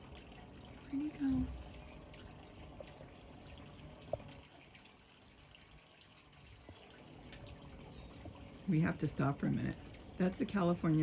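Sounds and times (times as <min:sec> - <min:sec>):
water trickling from fountain: 0:00.0 - 0:11.0.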